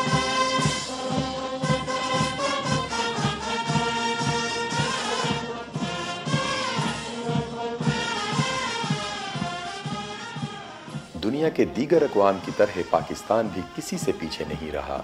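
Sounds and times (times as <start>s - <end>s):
steady drum beat: 0.0s - 15.0s
wind instruments sustaining: 0.0s - 15.0s.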